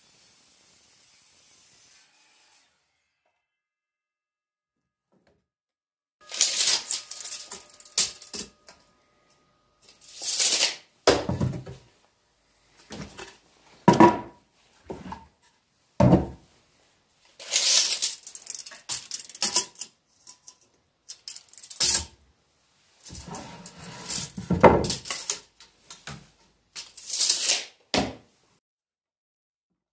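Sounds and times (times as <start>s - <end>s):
chop saw cutting wood: 0.8s - 3.4s
wood knocking and clattering: 13.9s - 15.3s, 16.0s - 16.4s.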